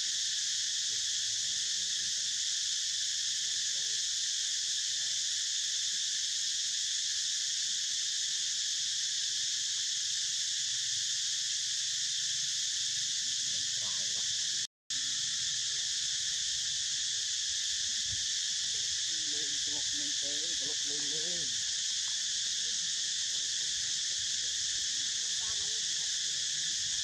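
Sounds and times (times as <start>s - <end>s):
insect chorus buzzing: 0.0s - 27.0s.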